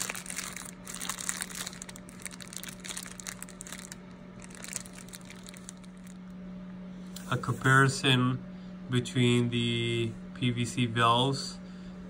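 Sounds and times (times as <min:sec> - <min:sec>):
plastic bag crinkling: 0:00.0 - 0:06.3
steady low hum: 0:00.0 - 0:12.0.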